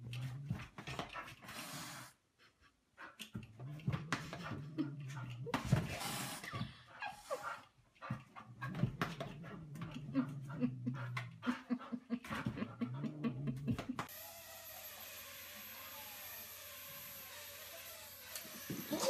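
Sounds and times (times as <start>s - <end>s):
dog whining: 18.8s - 19.0s.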